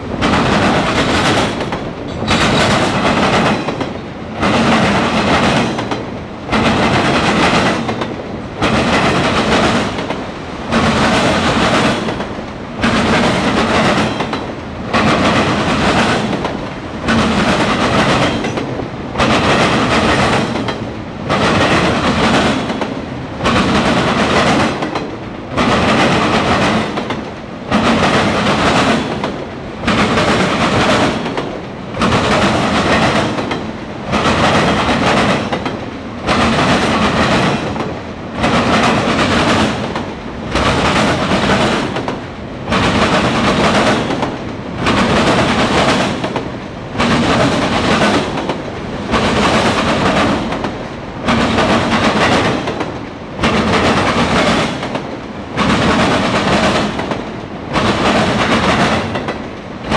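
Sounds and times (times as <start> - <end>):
train wheels clattering on rails: 0.0 - 59.9.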